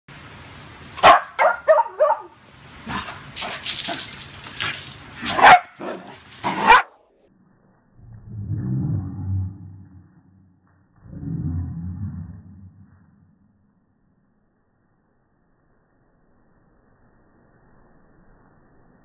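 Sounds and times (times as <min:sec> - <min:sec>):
small dog barking and yipping: 0:01.0 - 0:02.4, 0:05.2 - 0:06.9
deep slowed-down low sound: 0:07.3 - 0:14.3.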